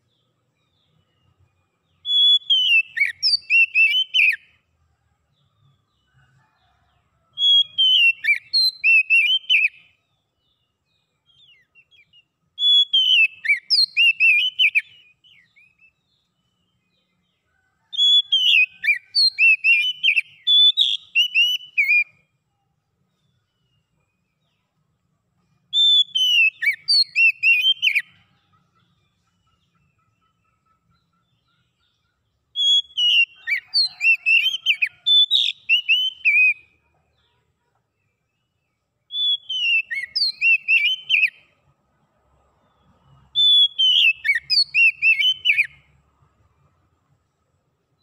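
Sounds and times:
bird singing whistled notes: 0:00.0 - 0:04.6, 0:07.3 - 0:17.2, 0:17.8 - 0:22.4, 0:25.5 - 0:36.8, 0:38.1 - 0:41.7, 0:42.6 - 0:46.8.

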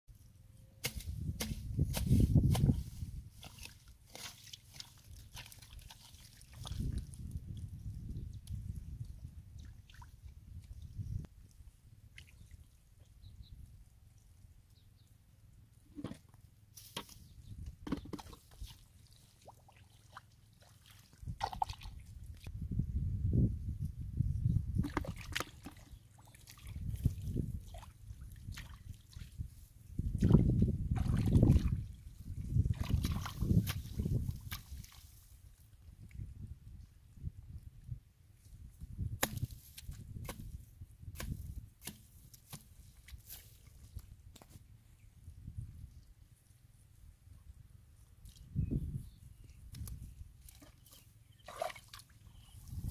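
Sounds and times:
water splashing in mud: 0:00.8 - 0:07.7, 0:09.5 - 0:10.2, 0:17.9 - 0:22.5, 0:24.8 - 0:29.4, 0:30.1 - 0:35.3, 0:49.7 - 0:52.2.

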